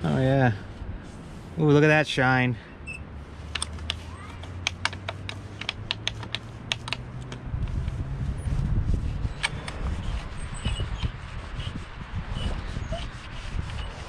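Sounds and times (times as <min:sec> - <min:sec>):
cloth rubbing on metal: 0:03.2 - 0:14.0.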